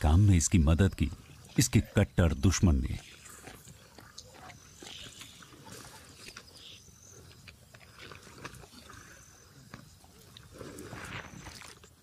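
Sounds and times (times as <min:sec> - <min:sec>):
hyena chewing and tearing meat: 0:03.0 - 0:12.0.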